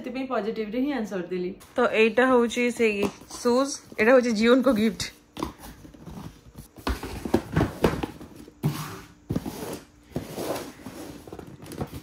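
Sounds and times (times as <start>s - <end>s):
cardboard scraping and rustling: 5.6s - 12.0s.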